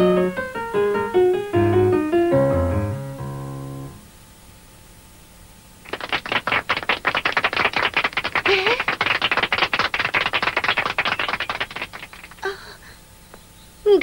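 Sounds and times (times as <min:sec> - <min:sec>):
people clapping: 0:05.8 - 0:12.6.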